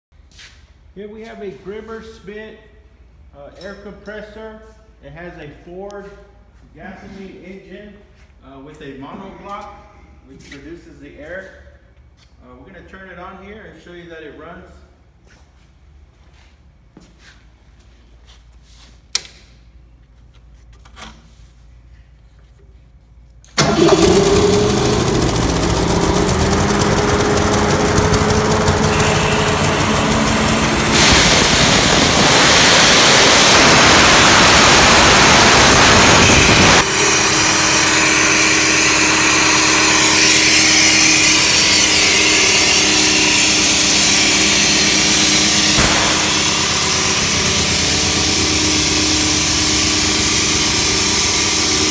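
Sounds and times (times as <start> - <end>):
compressor engine running: 23.6 - 51.9.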